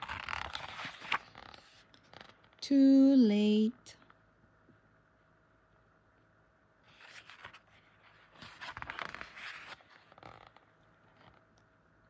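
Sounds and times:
book page turning: 0.0s - 2.6s, 6.8s - 11.6s.

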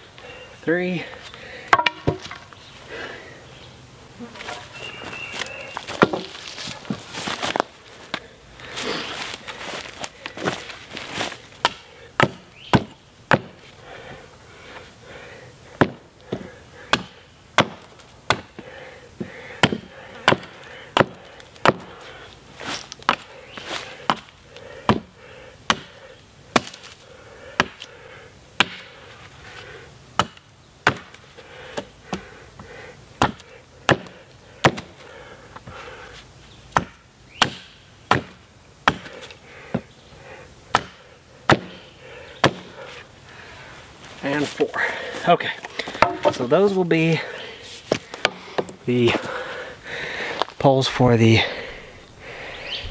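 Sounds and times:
hatchet chopping wood: 1.7s - 2.4s, 5.8s - 7.6s, 11.6s - 13.6s, 15.8s - 18.6s, 19.2s - 22.0s, 22.9s - 23.3s, 24.0s - 27.0s, 27.6s - 27.9s, 28.6s - 29.0s, 30.2s - 32.2s, 33.2s - 35.0s, 36.7s - 39.9s, 40.7s - 41.8s, 42.4s - 42.8s, 45.8s - 46.5s, 47.9s - 48.8s.

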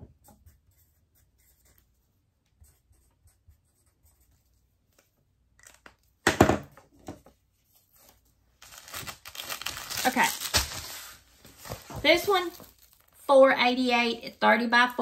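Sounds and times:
plastic bags rustling: 8.6s - 13.2s.

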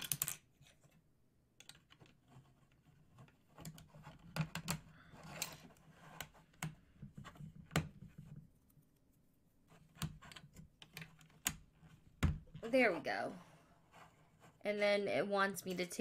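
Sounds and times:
plastic blocks clicking: 0.0s - 0.5s.

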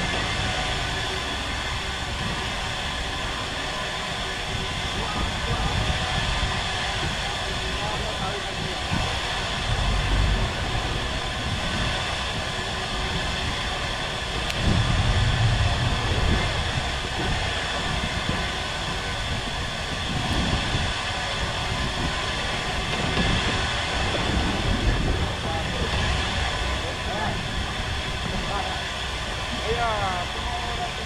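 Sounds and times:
boat engine humming: 0.0s - 31.0s
wind buffeting microphone: 0.0s - 31.0s.

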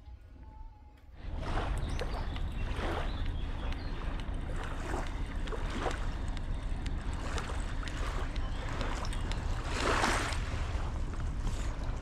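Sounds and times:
small waves lapping bank: 1.2s - 12.0s
wind rumble on microphone: 1.2s - 12.0s.

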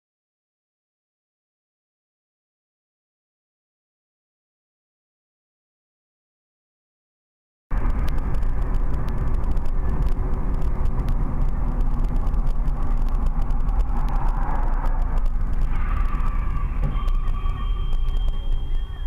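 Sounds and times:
car road and engine rumble: 7.7s - 19.0s
faint ticks: 7.8s - 15.7s.

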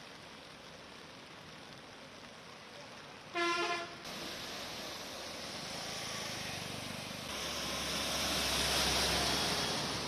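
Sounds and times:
car driving through floodwater: 0.0s - 10.0s
rushing water: 0.0s - 10.0s
traffic: 0.0s - 10.0s
vehicle horn honk: 3.4s - 3.9s.

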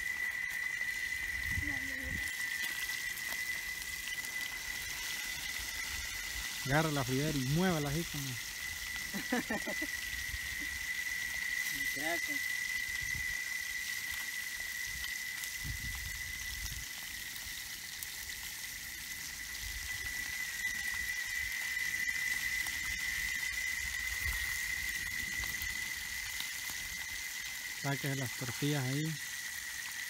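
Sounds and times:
steady high-pitched tone: 0.0s - 13.6s
fish sizzling in oil: 0.0s - 30.0s.

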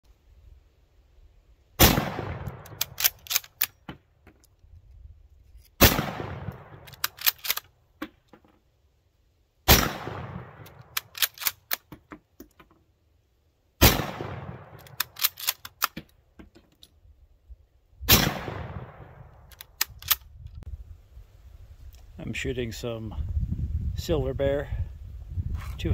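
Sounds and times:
rifle shots with echo: 1.8s - 3.6s, 5.8s - 7.6s, 9.7s - 11.7s, 13.8s - 15.7s, 18.1s - 19.8s
rifle bolt metallic clicks: 2.4s - 8.4s, 10.4s - 12.8s, 14.5s - 17.0s, 19.2s - 20.6s.

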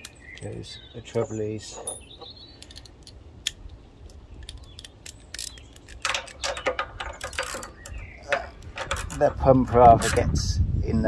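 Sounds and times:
hand tools tapping on metal: 0.0s - 3.2s, 4.4s - 10.4s
ratchet clicking: 4.5s - 8.0s.

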